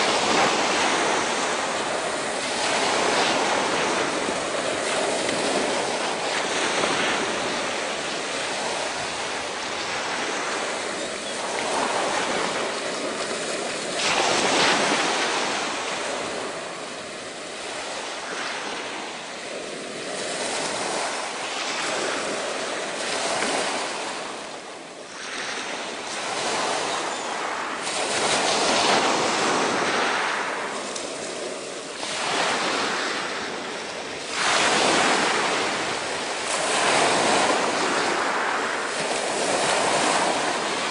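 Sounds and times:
waves breaking on shingle: 0:10.0 - 0:16.5.

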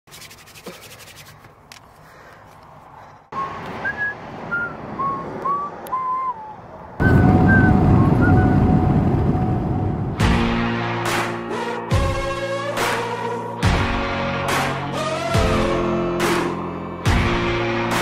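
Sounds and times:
hands rubbing together: 0:00.1 - 0:02.0
whistled notes: 0:03.4 - 0:08.9.

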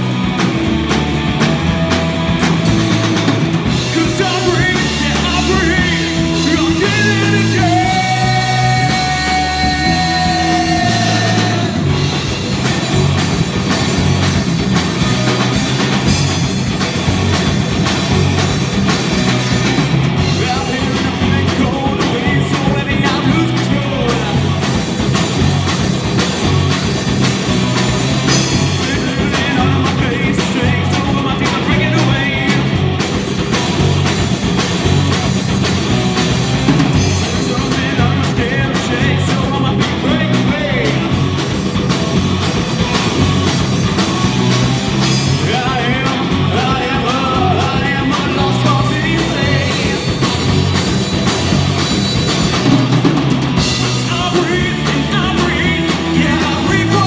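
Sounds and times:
drum kit: 0:00.0 - 0:57.0
electric guitars: 0:00.0 - 0:57.0
person singing lead vocal: 0:03.0 - 0:12.3, 0:20.2 - 0:24.8, 0:28.1 - 0:33.1, 0:36.6 - 0:41.4, 0:44.4 - 0:50.6, 0:53.6 - 0:57.0.

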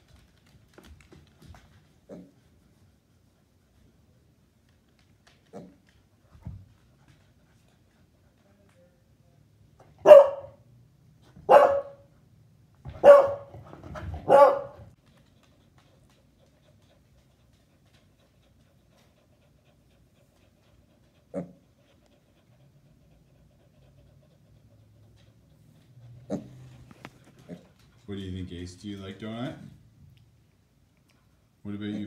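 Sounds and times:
dog barking: 0:10.0 - 0:10.6, 0:11.4 - 0:12.1, 0:12.9 - 0:13.5, 0:14.2 - 0:14.9.

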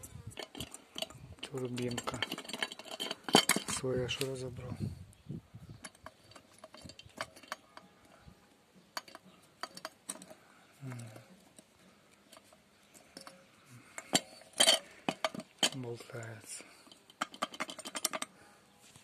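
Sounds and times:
light clicks and taps of metal: 0:05.8 - 0:18.4.

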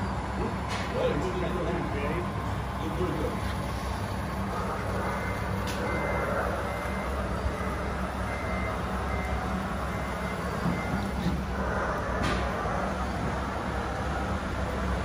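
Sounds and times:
steady low hum: 0:00.0 - 0:15.0
high reversing beep: 0:04.8 - 0:12.0.

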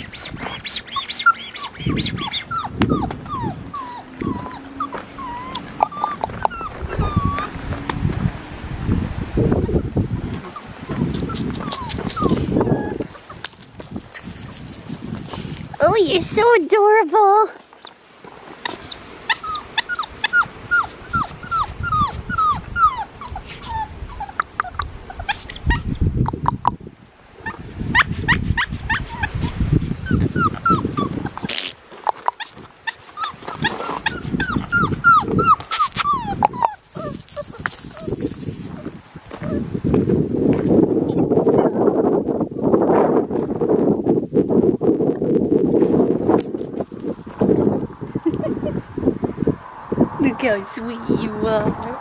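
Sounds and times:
puppy whimpering: 0:00.0 - 0:08.0, 0:10.4 - 0:16.3, 0:18.6 - 0:26.0, 0:27.4 - 0:31.6, 0:32.3 - 0:40.0, 0:46.8 - 0:48.8
rustling: 0:10.4 - 0:20.1, 0:30.2 - 0:40.8, 0:45.8 - 0:48.8.

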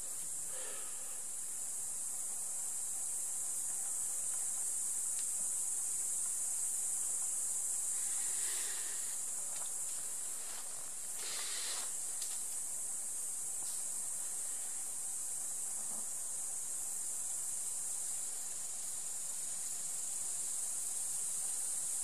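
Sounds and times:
insects stridulating: 0:00.0 - 0:22.0
breathy rushes of noise: 0:00.5 - 0:01.3, 0:11.2 - 0:12.0.

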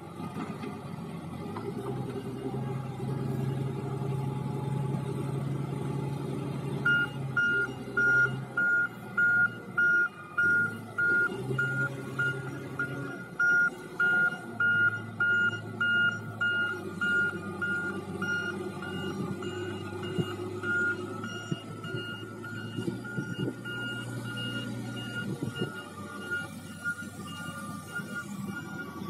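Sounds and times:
diesel engine running: 0:00.0 - 0:29.0
reversing alarm beeping: 0:06.8 - 0:29.0.

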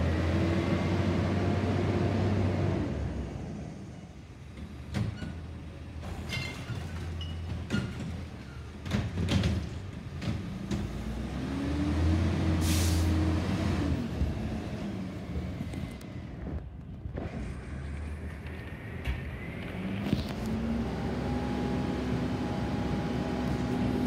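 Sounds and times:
air brake hiss: 0:12.6 - 0:13.2.

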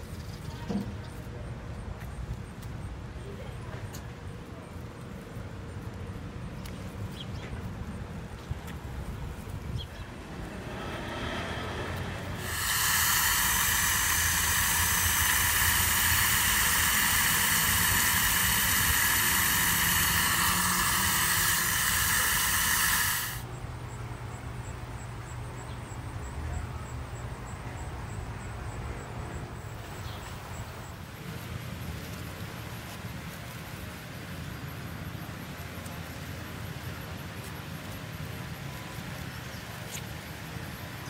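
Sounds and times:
outdoor background: 0:00.0 - 0:41.0
hose spraying water: 0:10.2 - 0:23.5.

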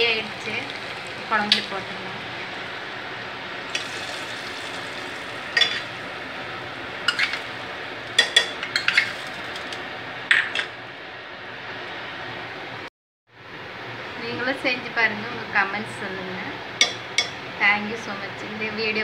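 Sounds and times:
metal ladle clinking against pot: 0:05.6 - 0:05.9.

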